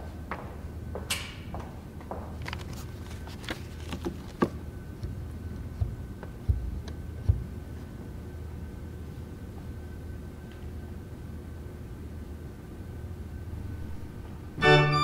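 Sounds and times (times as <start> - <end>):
dull thumps: 4.0 - 7.7
low hum: 12.8 - 15.0.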